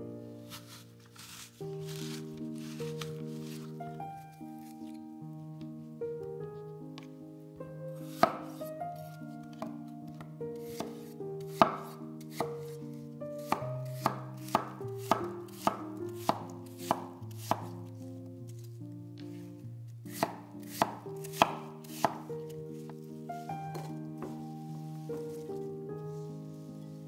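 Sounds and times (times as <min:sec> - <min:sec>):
soft background music: 0:00.0 - 0:27.0
knife chopping on cutting board: 0:08.1 - 0:08.6, 0:10.6 - 0:12.8, 0:13.4 - 0:17.7, 0:20.1 - 0:22.3, 0:23.7 - 0:24.3.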